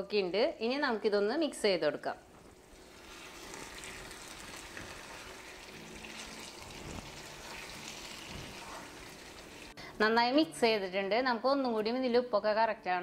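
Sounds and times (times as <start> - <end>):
curry sizzling in a frying pan: 2.5 - 9.8
wooden spatula scraping a pan: 6.7 - 9.5.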